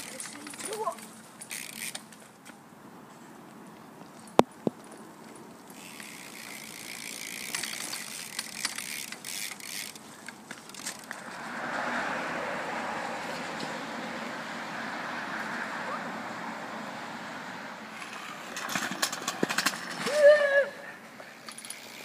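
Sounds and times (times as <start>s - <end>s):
freewheel ratchet ticking: 5.8s - 10.0s.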